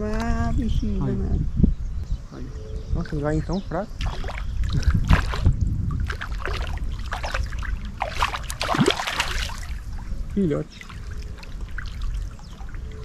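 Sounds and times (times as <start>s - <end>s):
wind rumble on microphone: 0.0s - 13.0s
water splashing and sloshing: 4.0s - 13.0s.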